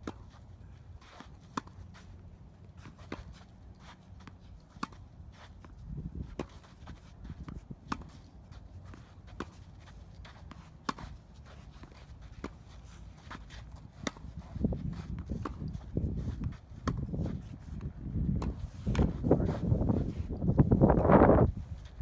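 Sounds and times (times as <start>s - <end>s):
rackets striking tennis ball: 1.0s - 19.2s
tennis ball bouncing: 1.1s - 1.8s, 4.2s - 12.6s, 13.2s - 15.8s, 16.4s - 17.2s, 17.8s - 19.2s.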